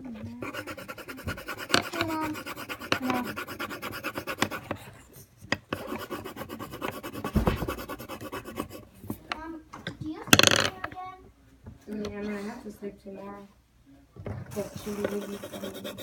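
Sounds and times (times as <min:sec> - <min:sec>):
pencil scratching on paper: 0:00.3 - 0:09.0, 0:14.5 - 0:16.0.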